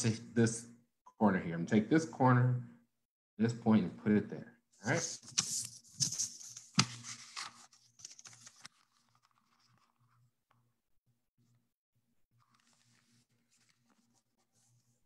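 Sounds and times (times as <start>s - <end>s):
paper being folded and creased: 4.9s - 10.3s, 12.4s - 15.0s.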